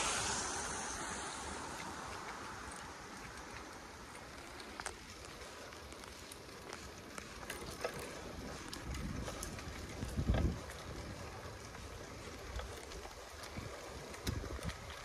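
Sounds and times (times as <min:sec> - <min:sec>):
low rumble: 0:00.0 - 0:04.9
wind noise: 0:00.0 - 0:05.1, 0:07.5 - 0:15.0
bicycle tyres rolling on dirt: 0:00.0 - 0:15.0
bike clicks and rattles: 0:00.2 - 0:15.0.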